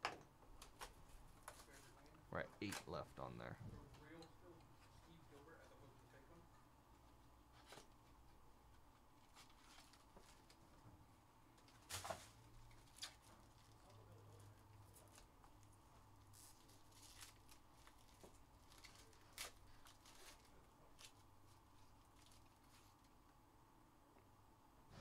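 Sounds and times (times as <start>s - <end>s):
foil wrapper crinkling and tearing: 16.3s - 23.2s.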